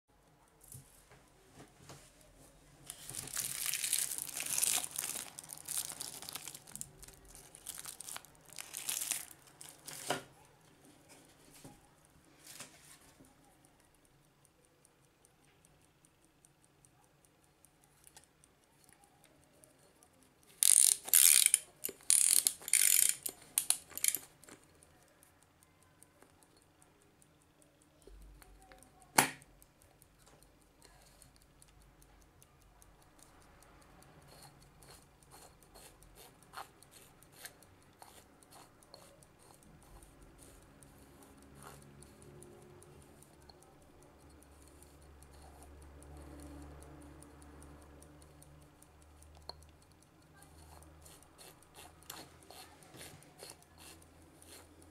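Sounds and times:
clock ticking: 0.2 - 54.9
sharp click: 28.0 - 29.6.

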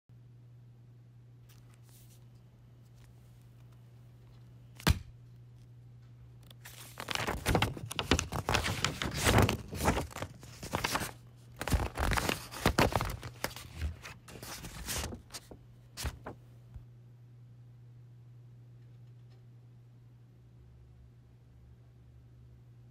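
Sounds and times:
steady low hum: 0.1 - 22.9
pages flipping: 1.4 - 5.0, 6.4 - 16.4
paper rustling and crinkling: 1.5 - 4.8, 6.4 - 16.4.

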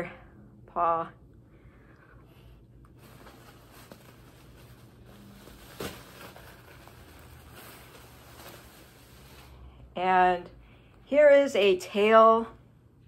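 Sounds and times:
rustling and handling noise: 1.8 - 9.8.

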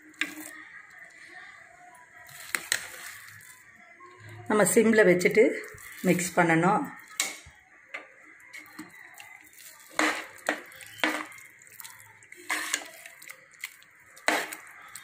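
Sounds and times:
wet sloshing and squelching: 5.6 - 6.4, 9.1 - 15.0
ladle clanking against pot: 10.0 - 11.4.

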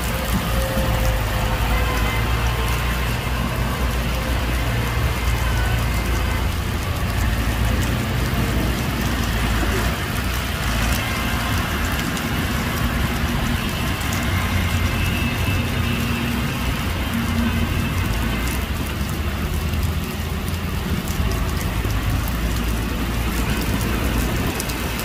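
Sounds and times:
heavy diesel engine running: 0.0 - 25.0
rain falling: 0.0 - 25.0.

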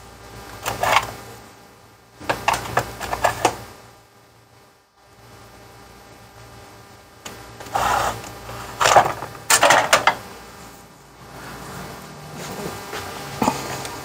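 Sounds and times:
tools clattering and scraping: 7.6 - 10.2.

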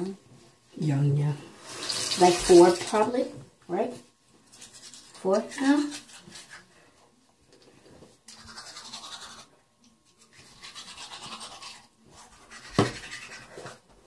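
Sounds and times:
toothbrush scrubbing teeth: 4.4 - 6.7, 8.2 - 13.8.

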